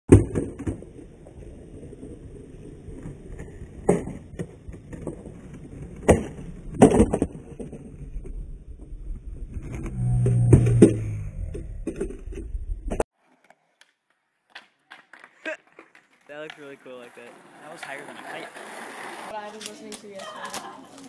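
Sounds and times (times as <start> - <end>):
skateboard wheels rolling on concrete: 0.1 - 21.0
short low hum: 8.4 - 13.0
skateboard clacking on concrete: 13.3 - 21.0.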